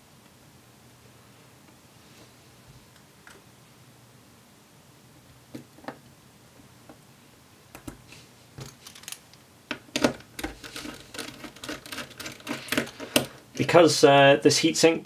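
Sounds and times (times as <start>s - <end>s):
small parts clicking and rattling: 8.6s - 13.5s.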